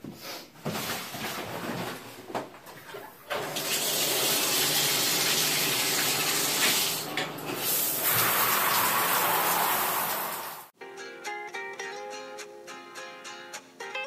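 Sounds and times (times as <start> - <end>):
shower water spraying: 3.3 - 10.7.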